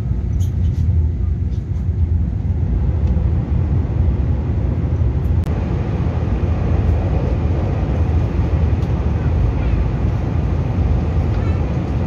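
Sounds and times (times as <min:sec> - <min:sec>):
train cabin running rumble: 0:00.0 - 0:12.0.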